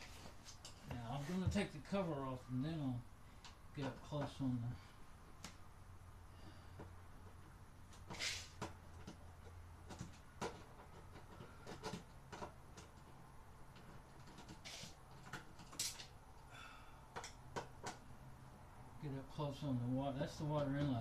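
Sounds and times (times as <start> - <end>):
scraping rustles: 0.0 - 1.7, 7.9 - 16.1.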